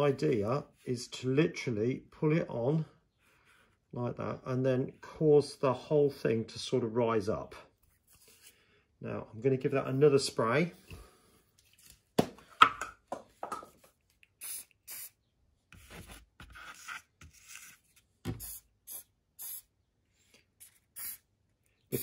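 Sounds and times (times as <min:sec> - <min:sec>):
aerosol can spraying: 0:14.4 - 0:15.2, 0:18.4 - 0:19.7, 0:20.6 - 0:21.3.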